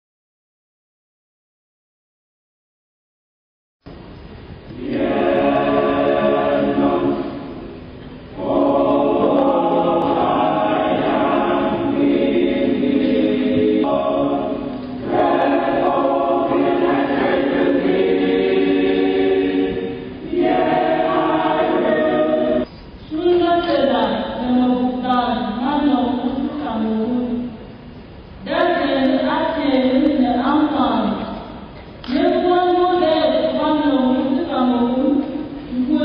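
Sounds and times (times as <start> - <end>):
choir singing: 4.7 - 22.7.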